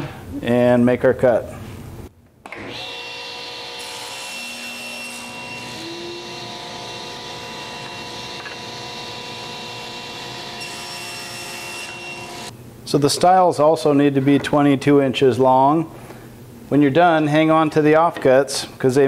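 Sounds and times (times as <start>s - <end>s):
table saw whining: 2.5s - 12.5s.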